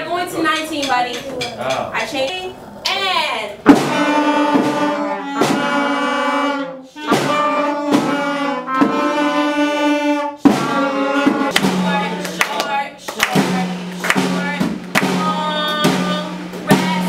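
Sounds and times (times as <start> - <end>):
wind band playing sustained chords: 3.7 - 12.8.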